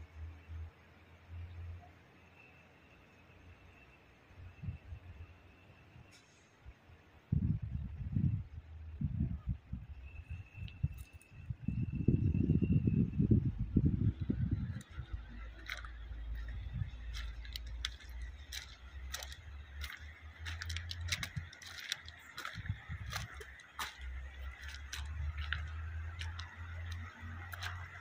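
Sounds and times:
heavy engine rumble: 0:04.4 - 0:28.0
distant diesel truck engine hum: 0:12.4 - 0:28.0.

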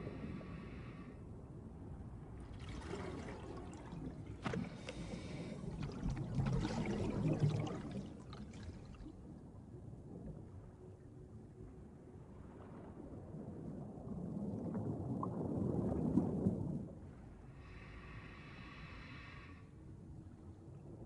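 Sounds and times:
underwater gurgling water: 0:02.3 - 0:10.4, 0:12.5 - 0:19.4.

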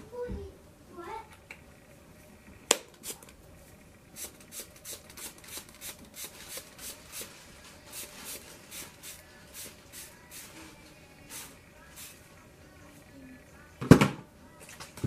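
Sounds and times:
spray bottle hissing: 0:04.2 - 0:10.5, 0:11.3 - 0:12.2.

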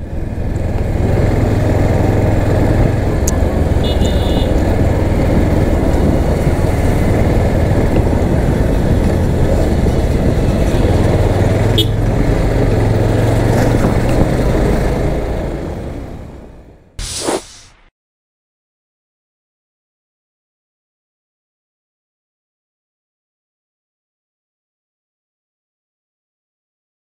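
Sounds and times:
motorcycle engine hum: 0:00.0 - 0:17.0
wind rush on microphone: 0:00.1 - 0:15.6.

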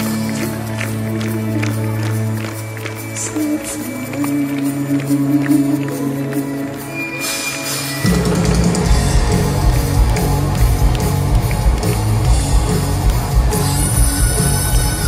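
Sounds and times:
distorted electric guitars: 0:00.0 - 0:15.0
drums: 0:00.0 - 0:15.0
live hard rock band: 0:06.6 - 0:15.0.

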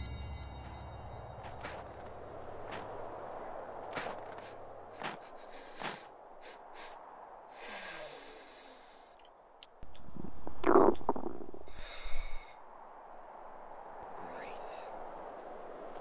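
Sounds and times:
person sniffing: 0:04.3 - 0:07.0, 0:07.6 - 0:09.2.

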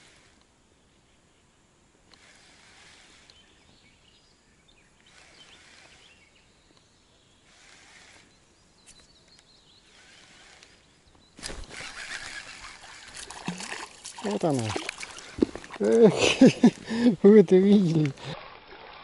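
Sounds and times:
faint bird chirps: 0:03.1 - 0:12.9.

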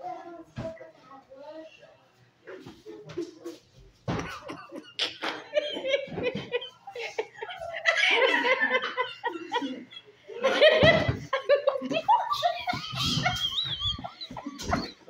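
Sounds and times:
people laughing: 0:04.2 - 0:15.0.

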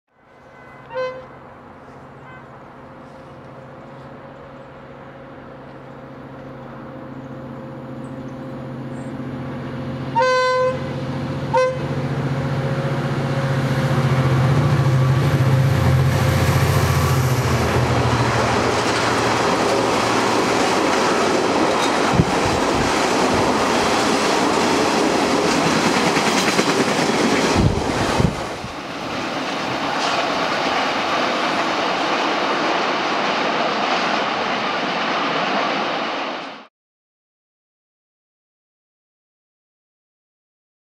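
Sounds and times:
locomotive horn: 0:00.1 - 0:03.2, 0:10.1 - 0:12.2
diesel engine drone: 0:01.4 - 0:25.2.

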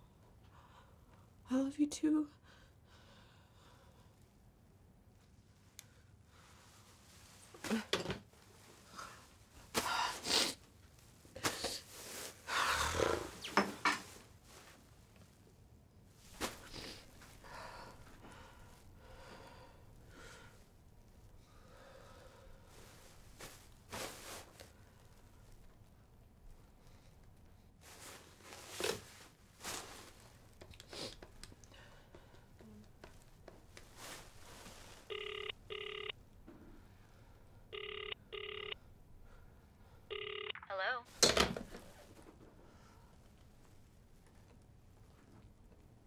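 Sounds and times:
telephone double ring: 0:35.1 - 0:36.1, 0:37.8 - 0:38.8, 0:40.1 - 0:40.7.

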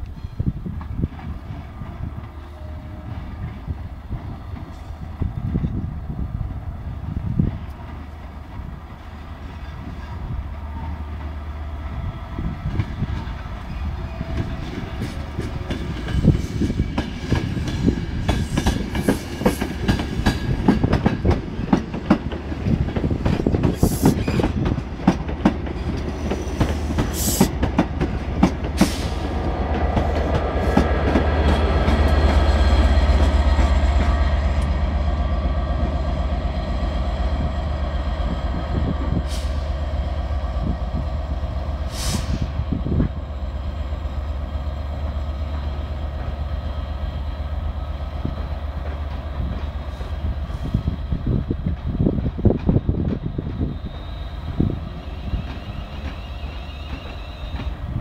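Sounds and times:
diesel locomotive engine humming: 0:00.0 - 0:58.0
train wheels clicking over rail joints: 0:12.6 - 0:34.9, 0:48.0 - 0:58.0.

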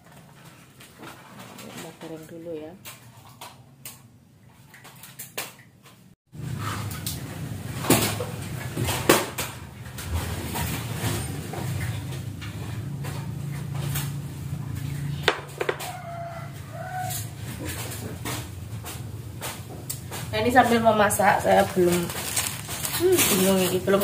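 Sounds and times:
scooter wheels rumbling on concrete: 0:06.4 - 0:24.0.

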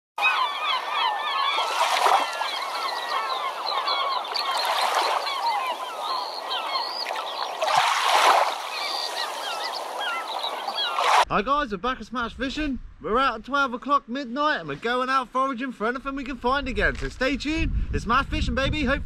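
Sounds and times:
flock of birds chattering: 0:00.2 - 0:11.2.

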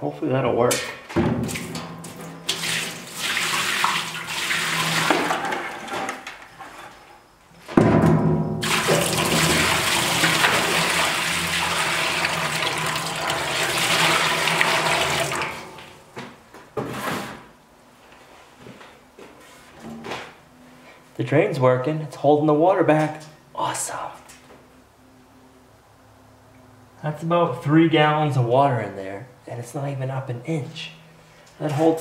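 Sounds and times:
water splashing into steel sink: 0:01.4 - 0:05.9, 0:08.6 - 0:15.8.

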